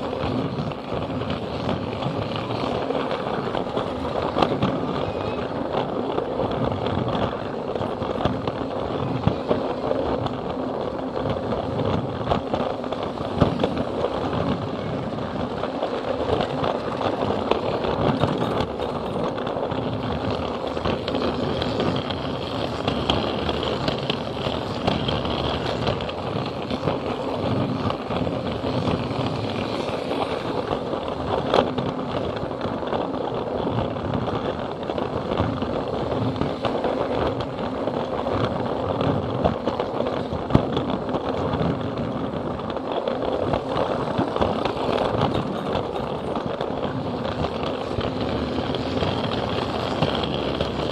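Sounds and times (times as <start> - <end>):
clicks at rail joints: 15.4 - 50.9.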